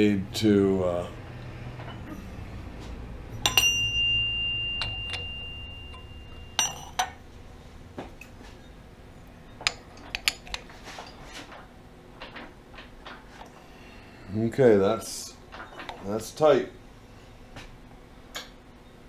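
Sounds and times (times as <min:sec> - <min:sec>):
metal part ringing: 0:03.3 - 0:07.2
sharp metal clink: 0:03.4 - 0:07.2.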